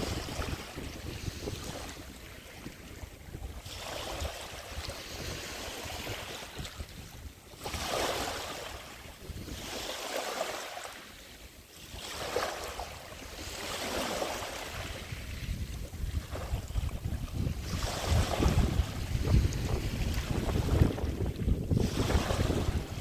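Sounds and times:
small waves washing on pebbly beach: 0.0 - 23.0.

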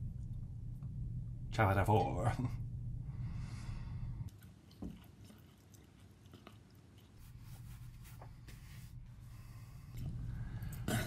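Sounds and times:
low hum: 0.0 - 4.3, 7.2 - 11.0
close-up chewing and mouth sounds: 4.3 - 7.3.

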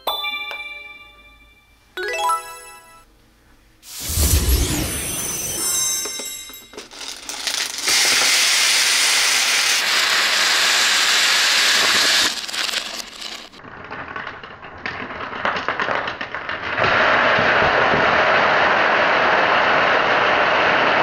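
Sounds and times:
loud rushing hiss: 3.8 - 5.8, 7.9 - 12.6
plastic beads clattering: 4.1 - 16.2.

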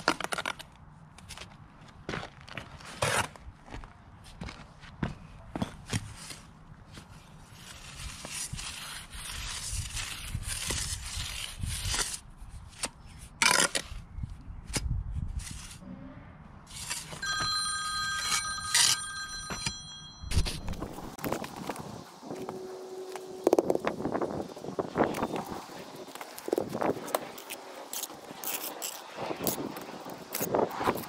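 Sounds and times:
trowel scraping wet mortar: 7.5 - 14.1, 25.0 - 31.0
steady ringing tone: 17.2 - 21.7.

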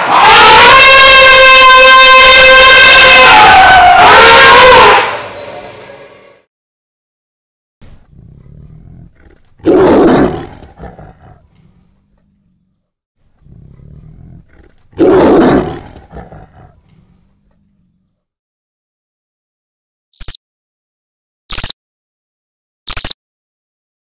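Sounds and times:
tiger roaring: 0.0 - 5.0, 7.8 - 18.3.

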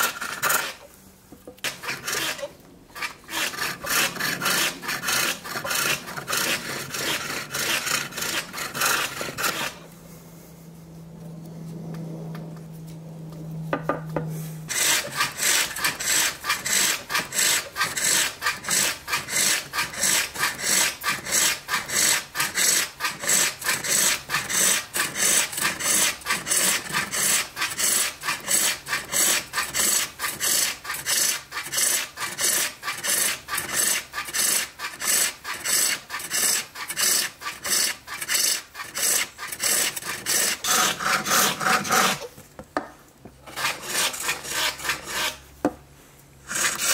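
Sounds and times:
hook tool scraping wood on lathe: 0.0 - 0.9, 1.5 - 9.9, 14.7 - 42.4, 43.4 - 45.4, 46.4 - 46.9
low hum: 9.8 - 14.7.

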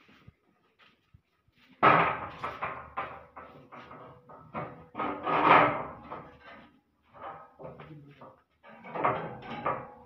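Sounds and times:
metal scraping and clanking: 1.8 - 7.6, 8.6 - 10.0.

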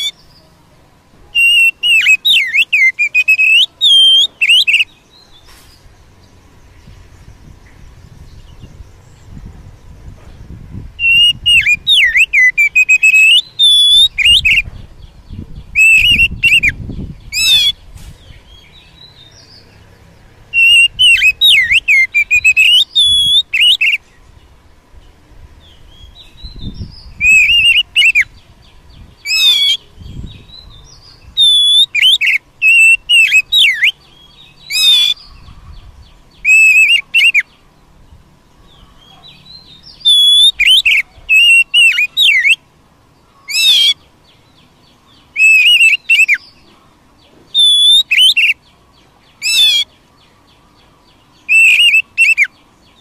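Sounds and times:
bird singing whistled phrases: 1.3 - 5.4, 11.0 - 14.7, 15.6 - 17.8, 20.6 - 24.0, 25.9 - 28.4, 29.2 - 35.6, 36.3 - 37.6, 39.1 - 42.6, 45.3 - 46.6, 47.5 - 48.6, 49.4 - 49.9, 51.4 - 52.6.

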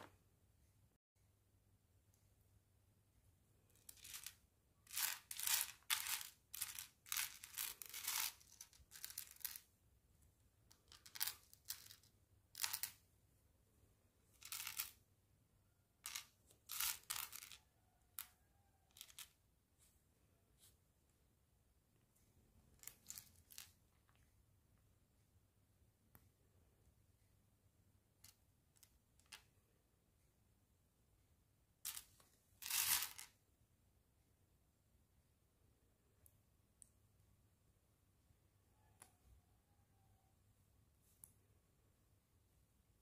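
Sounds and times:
plastic bricks rattling and clicking: 3.9 - 9.7, 16.0 - 17.6.

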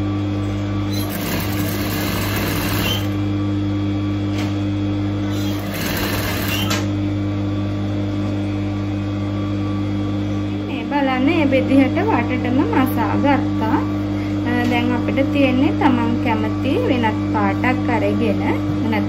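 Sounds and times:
sewing machine running: 0.9 - 3.2, 5.2 - 6.9.

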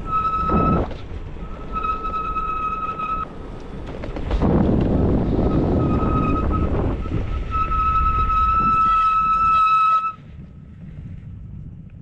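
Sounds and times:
wind rushing over microphone: 0.0 - 2.4, 3.0 - 12.0
bicycle brakes squealing: 0.0 - 3.2, 5.4 - 10.2.

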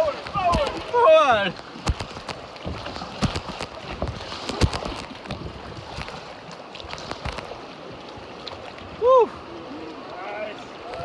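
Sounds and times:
water lapping around raft: 0.0 - 11.0
sharp knocks and thumps: 1.8 - 6.1.

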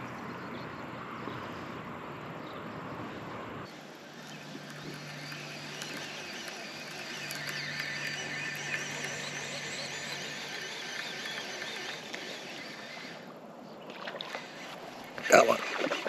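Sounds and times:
animals chirping and trilling: 3.7 - 15.8.

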